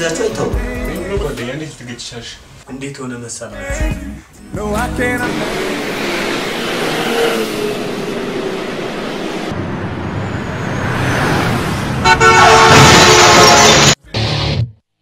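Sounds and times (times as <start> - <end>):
vehicles passing: 5.0 - 14.0.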